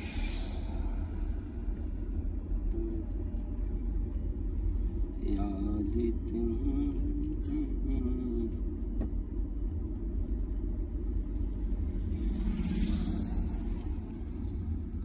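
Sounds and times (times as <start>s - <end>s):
hiss: 0.0s - 2.1s
car engine and tyres rumbling: 0.0s - 15.0s.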